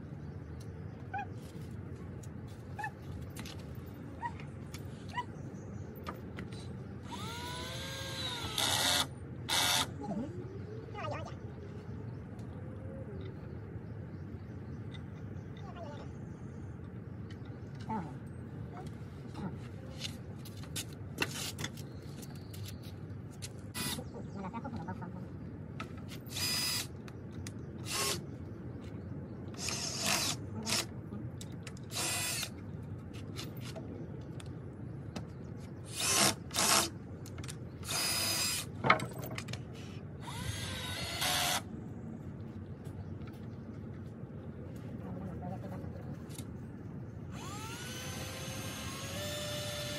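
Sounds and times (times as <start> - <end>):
power drill running: 7.1 - 9.9, 47.3 - 49.9.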